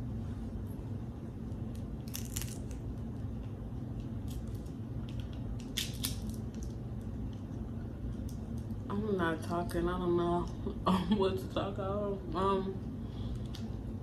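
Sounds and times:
low background hum: 0:00.0 - 0:14.0
crab shell cracking: 0:01.7 - 0:02.8, 0:04.2 - 0:06.8.

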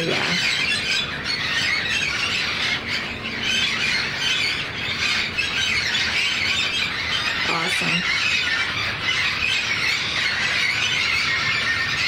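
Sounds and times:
parrots squawking: 0:00.0 - 0:12.0.

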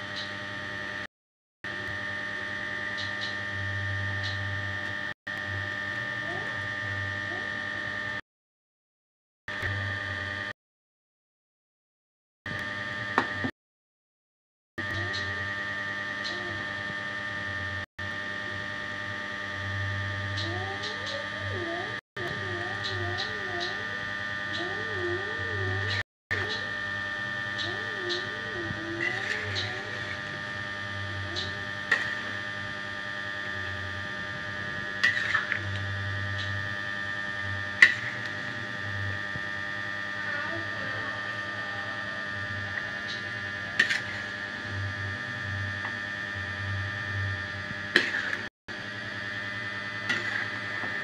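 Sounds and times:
high whine: 0:14.8 - 0:51.0
steady hum: 0:14.8 - 0:51.0.

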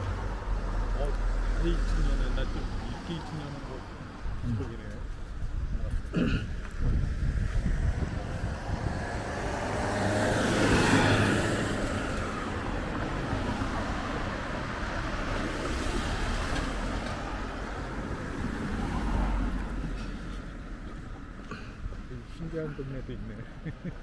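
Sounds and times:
steady traffic noise: 0:00.0 - 0:24.0
vehicle passing close by: 0:06.9 - 0:20.6.

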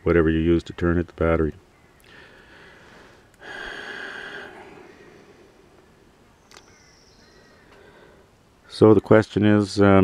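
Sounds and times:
person breathing near microphone: 0:02.0 - 0:05.8, 0:07.4 - 0:08.4
faint click: 0:06.4 - 0:06.8.

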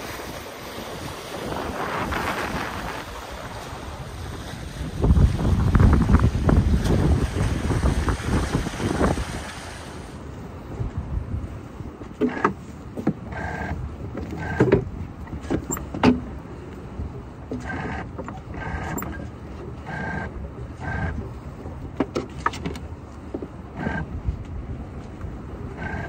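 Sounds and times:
knocks of rope and fittings: 0:22.0 - 0:24.1.

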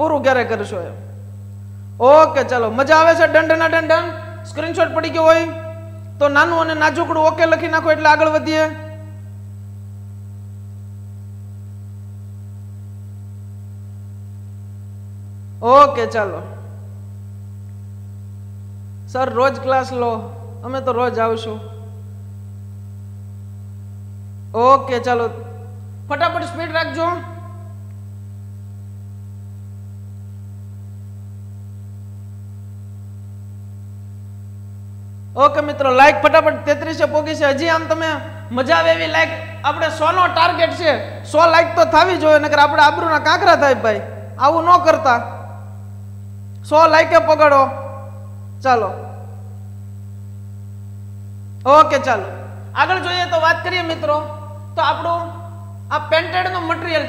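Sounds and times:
electrical mains hum: 0:00.0 - 0:57.0.

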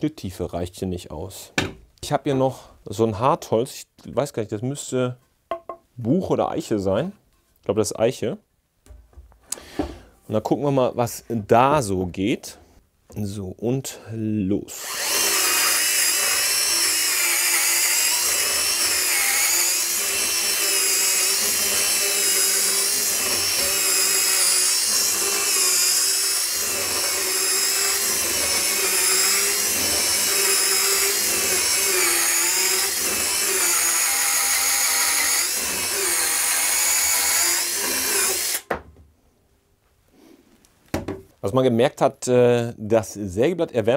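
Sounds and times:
mini chainsaw cutting wood: 0:14.8 - 0:38.7.

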